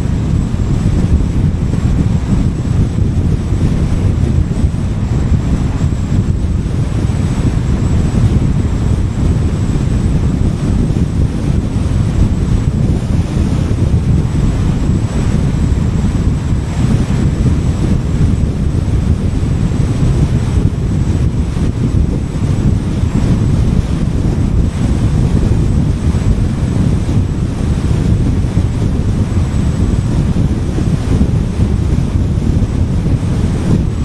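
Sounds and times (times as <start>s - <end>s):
car wind and road noise: 0.0s - 34.0s.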